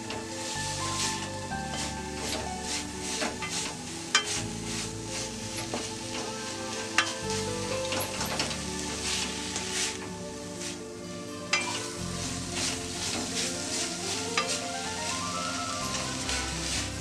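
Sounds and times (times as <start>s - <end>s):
food sizzling: 0.0s - 17.0s
soft background music: 0.0s - 17.0s
spatula scraping a metal pan: 0.8s - 7.2s.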